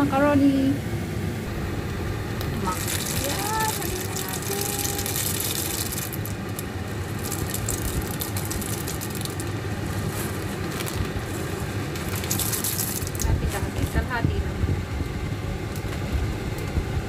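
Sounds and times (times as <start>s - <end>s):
soup bubbling: 2.2s - 13.3s.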